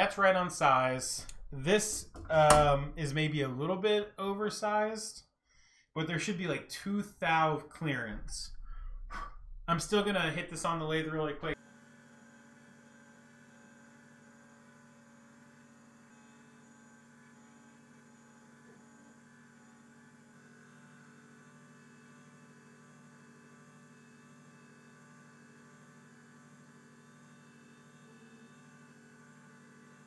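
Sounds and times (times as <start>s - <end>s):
faint electric hum: 0.0s - 5.2s, 6.2s - 11.6s.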